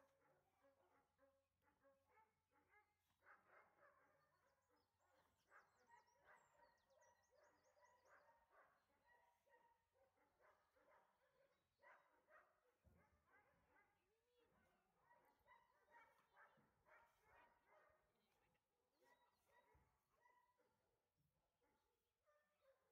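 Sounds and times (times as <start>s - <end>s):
faint birdsong trills: 4.2s - 9.5s.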